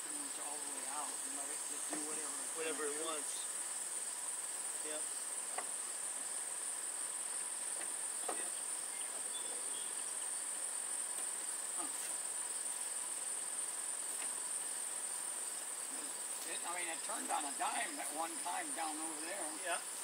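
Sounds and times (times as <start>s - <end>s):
insects trilling: 0.0s - 20.0s
faint knocks: 7.7s - 8.5s.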